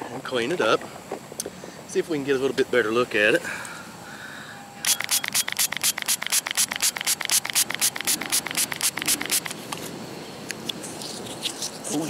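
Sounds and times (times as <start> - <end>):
spray bottle squirting water: 4.8 - 9.6.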